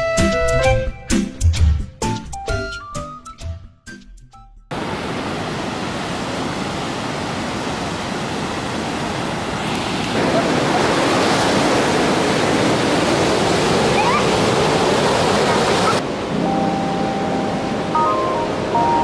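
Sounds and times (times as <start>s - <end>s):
waves breaking on a beach: 4.7s - 19.0s.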